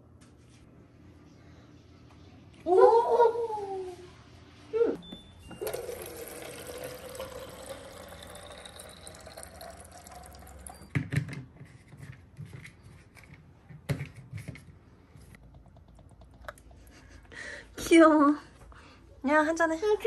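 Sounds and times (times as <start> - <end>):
water filling glass bottle: 5.5 - 10.9.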